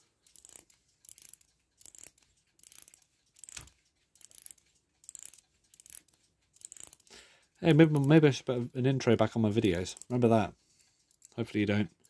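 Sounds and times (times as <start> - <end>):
clock winding ratchet clicks: 0.0 - 8.3, 9.5 - 10.2.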